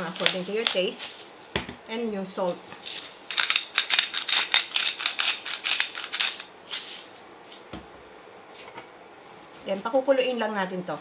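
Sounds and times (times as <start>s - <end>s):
salt grinder clicking: 3.3s - 6.5s.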